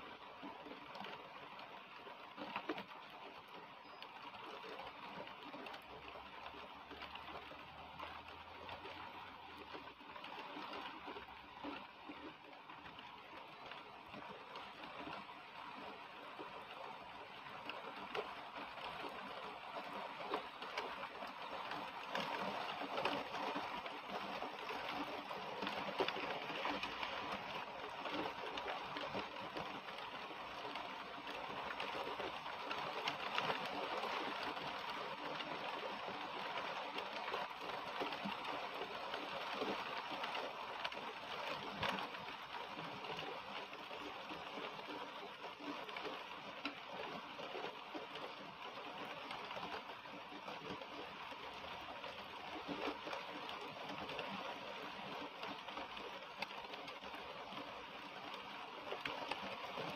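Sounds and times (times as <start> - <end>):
heavy rain on trees: 0.0 - 59.9.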